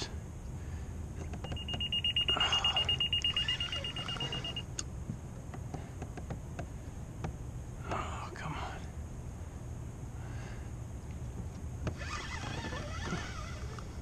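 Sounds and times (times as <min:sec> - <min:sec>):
rapid high electronic beeping: 0:01.5 - 0:04.6.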